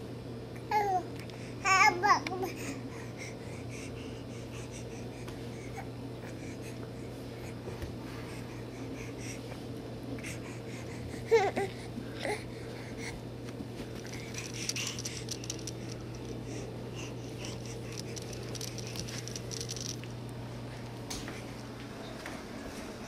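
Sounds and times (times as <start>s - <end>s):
steady low hum: 0.0s - 23.0s.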